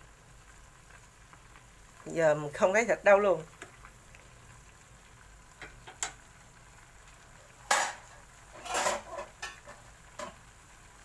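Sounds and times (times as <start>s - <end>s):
chopsticks clattering on metal pot: 8.6s - 10.4s.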